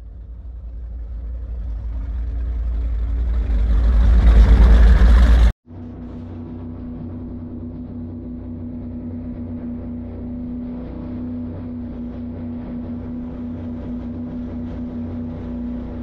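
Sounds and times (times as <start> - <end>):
motor drone: 0.0 - 16.0
wind noise: 3.6 - 16.0.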